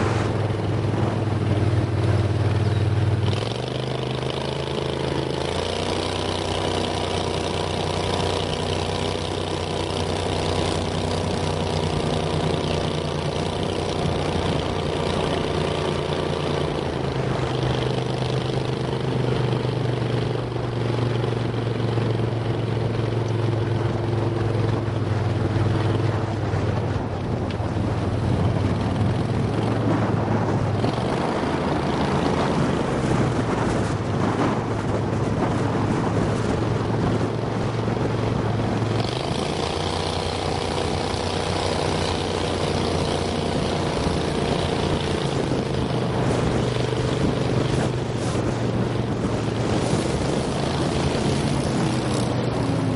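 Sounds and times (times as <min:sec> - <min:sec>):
water noise: 0:00.0 - 0:04.8, 0:22.1 - 0:52.9
boat engine drone: 0:00.0 - 0:52.9
wind noise: 0:00.0 - 0:52.9.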